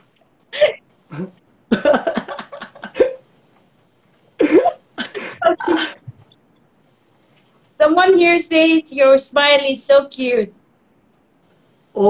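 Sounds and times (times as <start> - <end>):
man and woman laughing: 1.7 - 3.2, 4.4 - 6.0.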